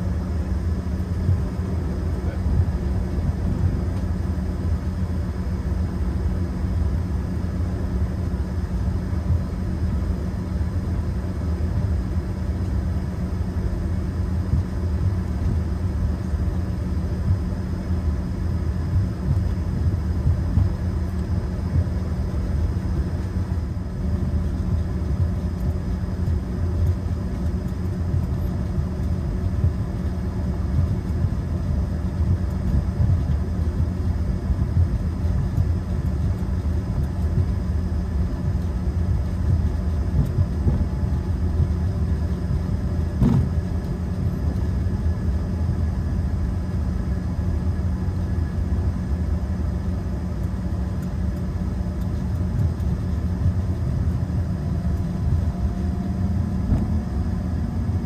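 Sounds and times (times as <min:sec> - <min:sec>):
faint jet engine whine: 0:00.0 - 0:58.0
low cabin rumble: 0:00.0 - 0:58.0.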